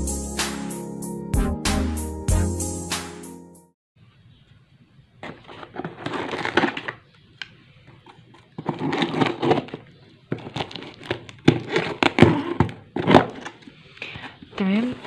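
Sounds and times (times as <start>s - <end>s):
knife slitting packing tape: 8.6s - 9.8s.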